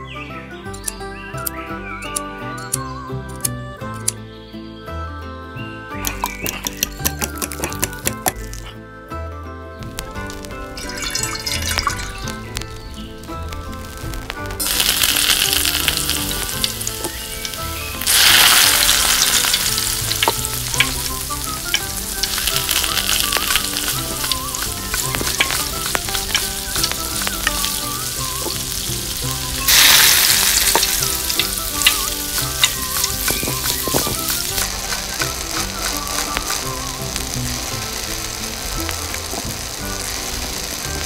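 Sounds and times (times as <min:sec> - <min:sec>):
food sizzling in a pan: 0:10.3 - 0:41.0.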